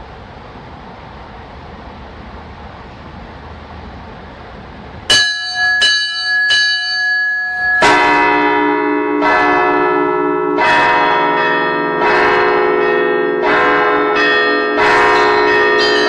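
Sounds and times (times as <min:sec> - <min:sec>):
small chiming bells: 0:05.1 - 0:08.4, 0:14.2 - 0:16.0
deep bell with low hum: 0:05.1 - 0:16.0.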